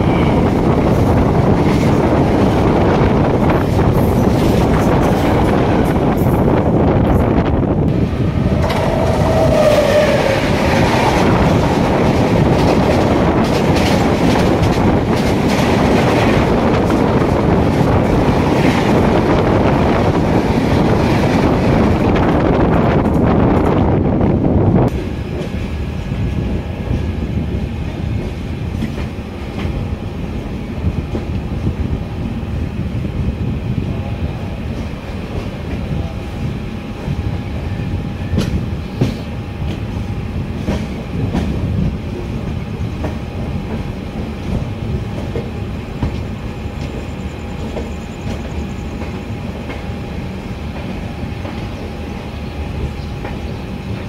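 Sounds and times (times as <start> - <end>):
train rumbling: 0.0 - 54.0
wheels clacking on rail joints: 8.5 - 19.2.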